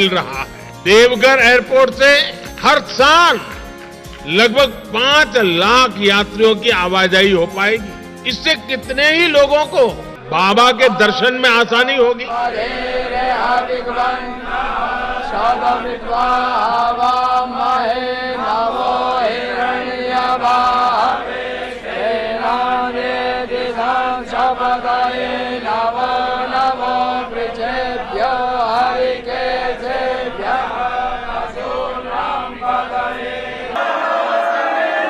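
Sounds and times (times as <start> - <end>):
voices chanting: 12.2 - 35.0.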